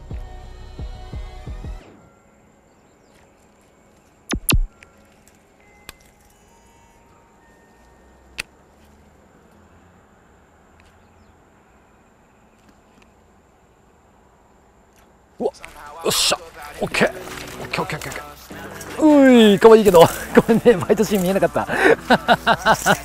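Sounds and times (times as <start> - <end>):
faint steady high tone: 2.0 - 8.4.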